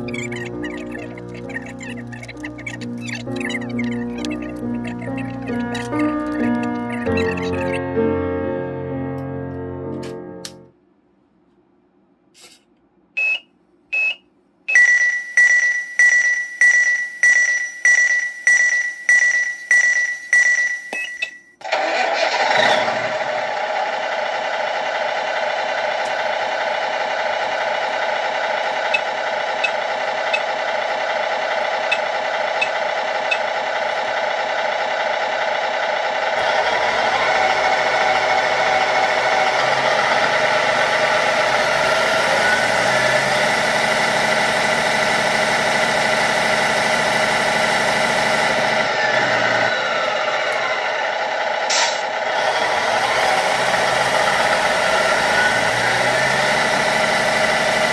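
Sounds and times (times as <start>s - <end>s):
pulsing starter sequence: 0.0s - 7.8s, 14.8s - 57.9s
simulated truck engine idling: 0.0s - 7.8s, 21.6s - 57.9s
short beeps: 13.2s - 21.6s.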